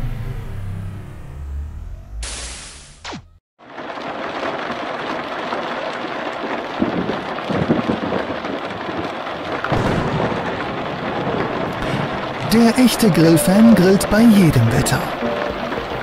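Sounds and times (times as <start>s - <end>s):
heavy rain pouring: 3.6s - 16.0s
thunder rumbling: 3.7s - 16.0s.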